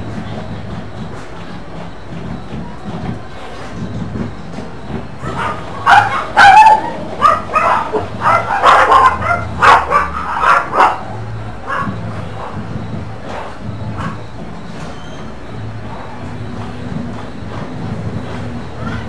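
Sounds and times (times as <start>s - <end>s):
steady low hum: 0.0s - 19.0s
dog barking: 5.3s - 12.6s.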